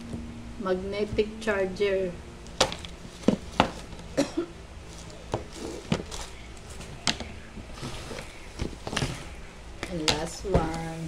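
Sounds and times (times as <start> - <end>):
plastic packaging crinkling: 2.5 - 4.2, 4.8 - 9.4.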